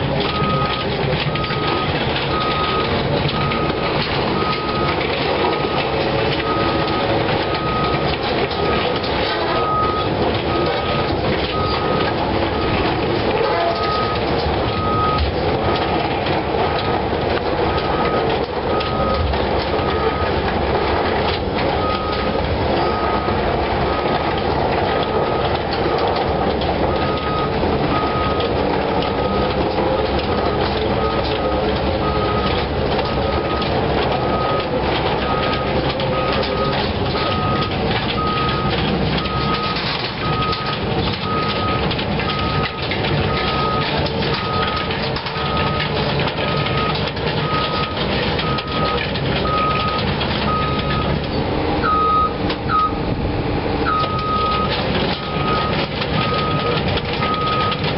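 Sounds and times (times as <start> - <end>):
excavator engine and tracks: 0.0 - 57.9
travel alarm beeping: 0.2 - 17.0, 17.6 - 51.2, 51.8 - 53.0, 53.8 - 57.9.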